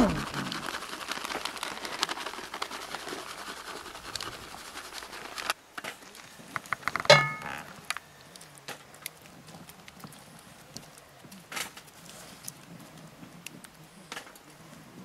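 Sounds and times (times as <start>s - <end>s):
cheese shaker rattling: 0.0s - 5.6s
glass jar clinking on pot: 7.0s - 7.7s.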